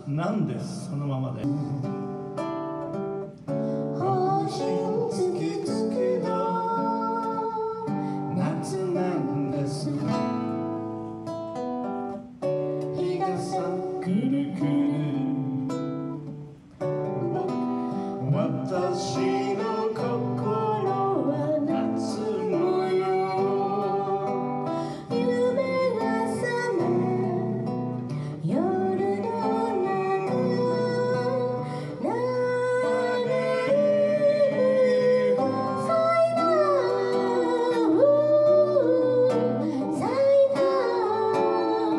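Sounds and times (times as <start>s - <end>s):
acoustic guitar: 0.0s - 41.9s
man singing into a microphone: 1.4s - 2.0s, 4.0s - 10.5s, 12.9s - 15.8s, 18.2s - 27.8s, 28.4s - 41.9s.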